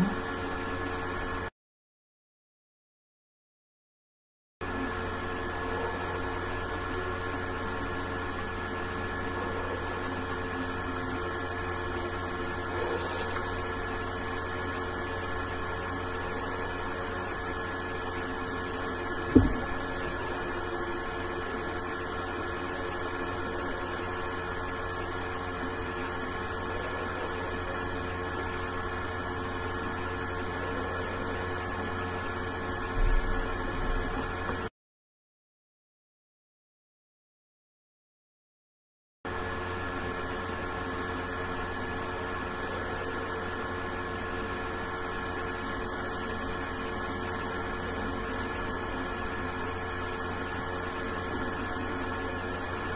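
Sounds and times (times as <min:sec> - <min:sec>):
electrical hum: 0:00.0 - 0:01.5, 0:04.6 - 0:34.7, 0:39.3 - 0:52.9
sharp knock: 0:19.3 - 0:19.7.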